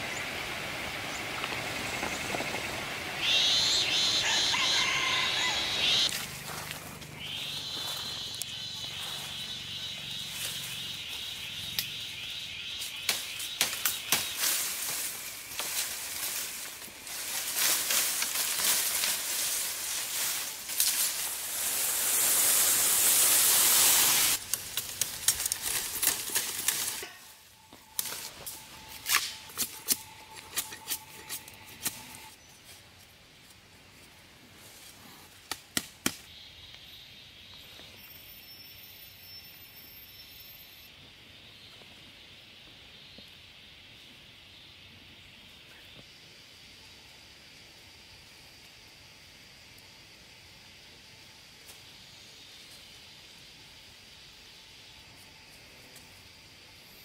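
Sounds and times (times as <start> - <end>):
bamboo foliage rustling: 0.0 - 36.3
bamboo stems snapping: 13.0 - 19.6, 24.4 - 27.1, 27.9 - 32.0, 35.4 - 36.3.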